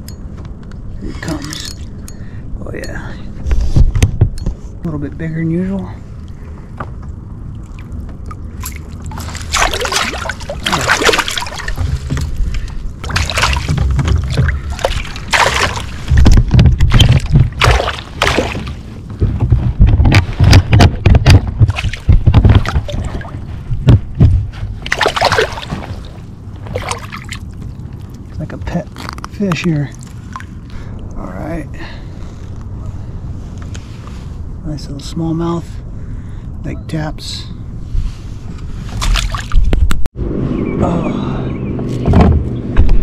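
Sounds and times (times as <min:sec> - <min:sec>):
low rumbling: 0:00.0 - 0:36.7, 0:37.4 - 0:43.0
fish splashing in water: 0:07.6 - 0:16.2, 0:16.8 - 0:18.9, 0:24.8 - 0:28.3.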